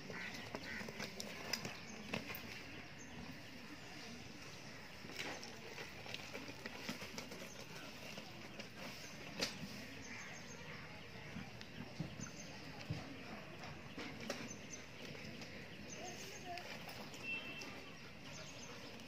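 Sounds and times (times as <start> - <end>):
goat hooves tapping on dirt: 0.0 - 3.0, 4.6 - 19.0
outdoor background noise: 0.0 - 19.0.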